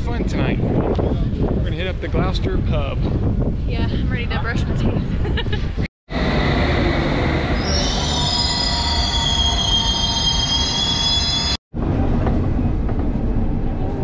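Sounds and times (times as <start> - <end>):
underground train rumbling: 0.0 - 14.0
wheels squealing on rails: 6.2 - 11.6.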